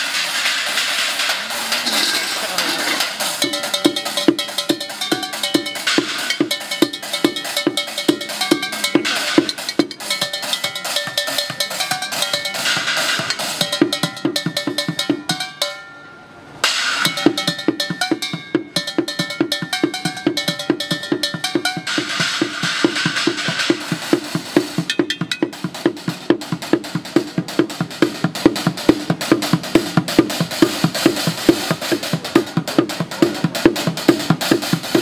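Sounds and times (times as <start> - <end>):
metal pots and pans ringing: 0.0 - 26.2.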